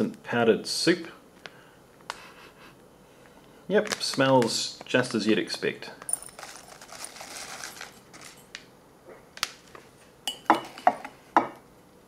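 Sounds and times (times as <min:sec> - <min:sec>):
soft rustle: 0:06.3 - 0:08.5
metal spoon clinking on ceramic mug: 0:10.3 - 0:11.1.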